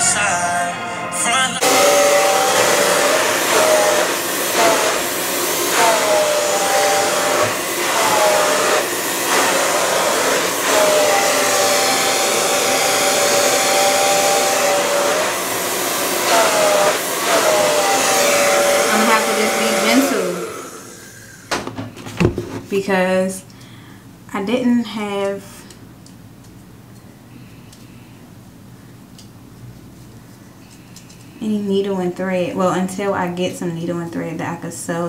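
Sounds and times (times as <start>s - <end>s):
hair dryer blowing: 1.6s - 21.7s.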